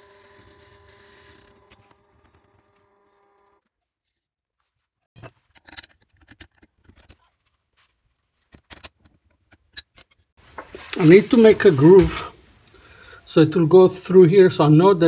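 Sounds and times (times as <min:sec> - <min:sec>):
lathe motor hum: 0:00.0 - 0:03.6.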